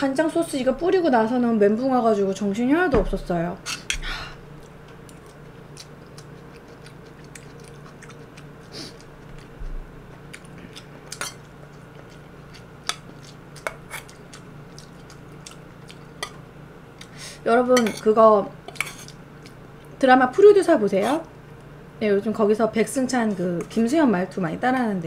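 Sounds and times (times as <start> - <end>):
cutlery clinking against bowl: 17.8 - 18.1.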